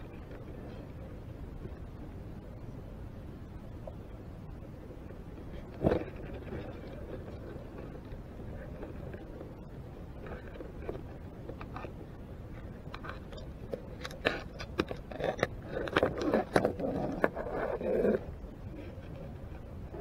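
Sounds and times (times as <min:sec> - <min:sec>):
crab legs clicking and scraping: 0:12.8 - 0:18.3.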